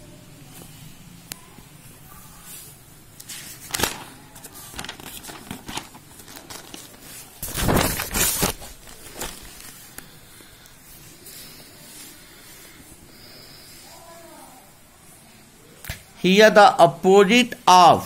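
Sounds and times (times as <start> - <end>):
paper rustling: 2.5 - 12.8.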